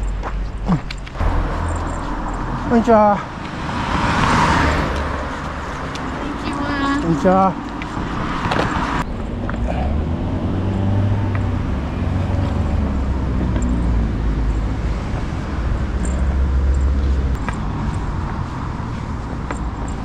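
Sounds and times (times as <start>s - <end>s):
vehicle engine running: 0.0s - 3.9s, 8.9s - 20.0s.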